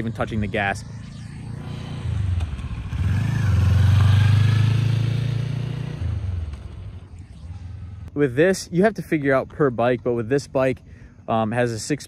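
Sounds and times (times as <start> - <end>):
motorcycle riding past: 0.0 - 8.1.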